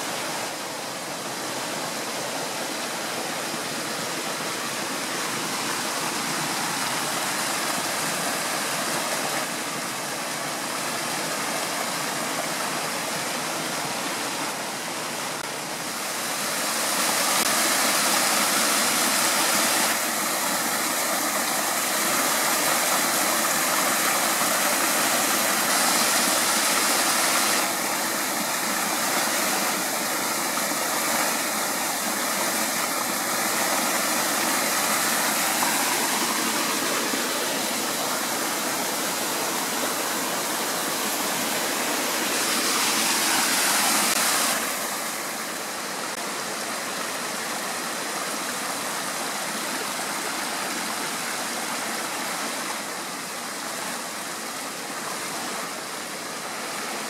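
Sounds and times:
mountain stream rushing: 0.0s - 57.0s
waterfall splashing into pool: 15.3s - 46.5s.

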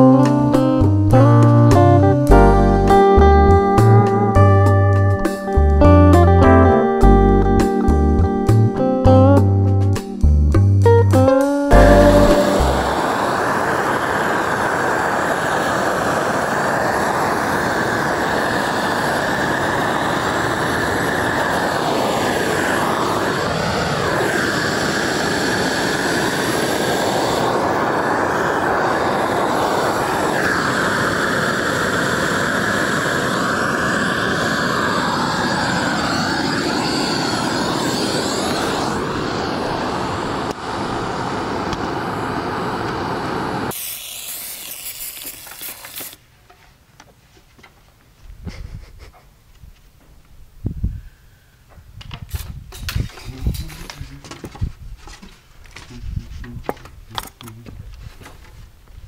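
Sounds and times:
gas torch hissing: 11.7s - 46.2s, 52.3s - 54.6s.

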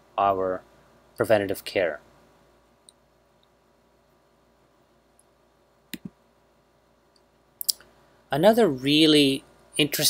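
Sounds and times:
computer mouse button clicking: 5.9s - 6.2s.

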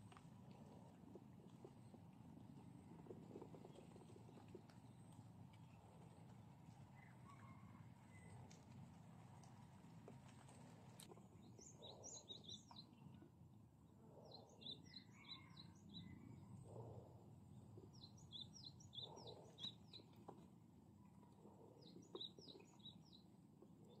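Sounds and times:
faint outdoor background noise: 0.0s - 24.0s
songbird singing: 11.3s - 20.4s, 21.4s - 24.0s.

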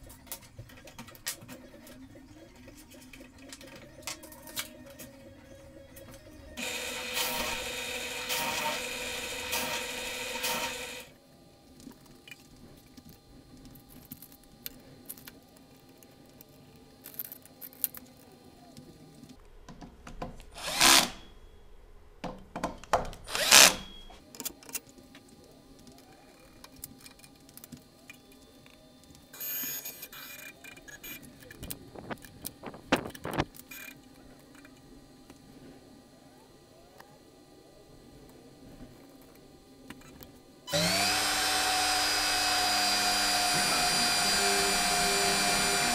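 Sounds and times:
cordless drill driving screws: 6.6s - 11.1s, 20.6s - 21.2s, 23.3s - 23.8s, 40.7s - 45.9s.

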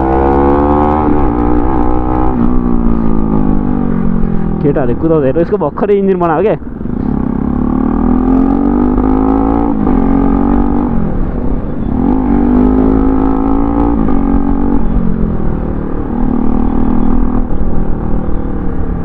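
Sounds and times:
motorcycle engine accelerating: 0.0s - 5.0s, 6.7s - 19.0s
road and wind noise: 0.0s - 19.0s.

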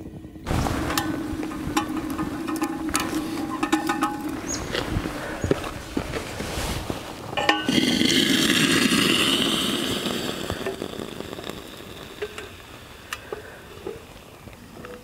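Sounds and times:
metal tin clinking: 0.8s - 4.8s, 7.4s - 8.0s
hiss: 7.7s - 14.4s
light ticks: 13.1s - 13.5s.

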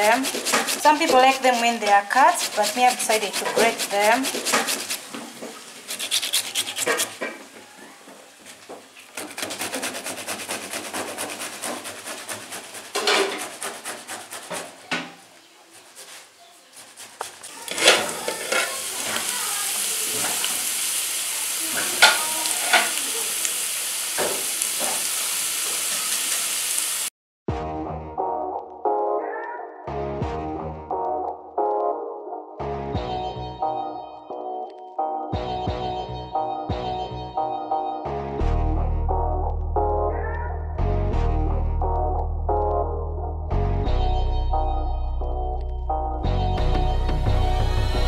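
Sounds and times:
tomatoes scraping on metal grater: 0.0s - 5.1s, 5.8s - 7.2s, 9.1s - 14.9s, 15.7s - 19.4s
potatoes and onions sizzling: 0.0s - 9.6s, 15.2s - 27.1s.

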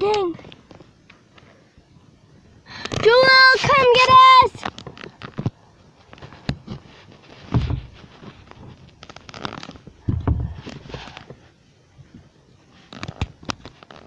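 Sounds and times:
clothing rustling: 5.9s - 11.4s.

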